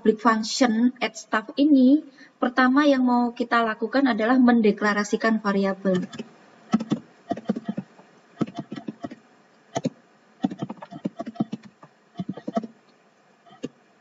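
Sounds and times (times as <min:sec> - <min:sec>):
typing on computer keyboard: 0:09.8 - 0:12.7.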